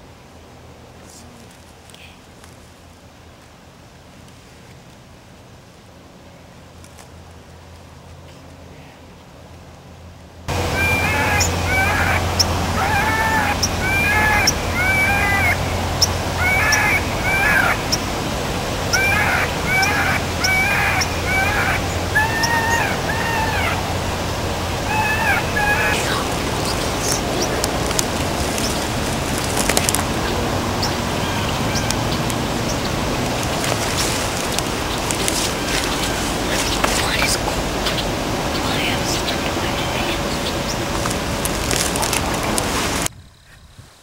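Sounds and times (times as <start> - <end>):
steady outdoor hiss: 0.0 - 44.0
rustles and clicks in dry brush: 1.1 - 3.6, 6.8 - 8.6, 26.4 - 30.4, 31.9 - 38.1, 40.8 - 44.0
predator call wailing cries: 10.5 - 33.6.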